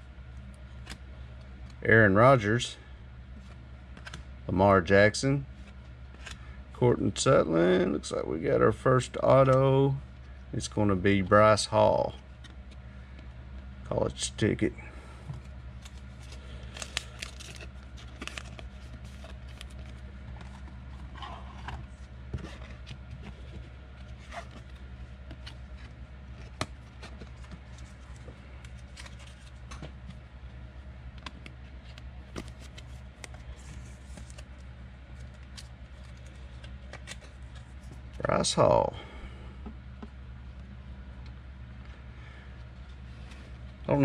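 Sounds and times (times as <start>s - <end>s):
steady low hum: 0.0s - 44.0s
cards rustling and clicking: 3.4s - 4.3s, 5.6s - 6.5s, 15.3s - 30.2s, 31.1s - 38.2s.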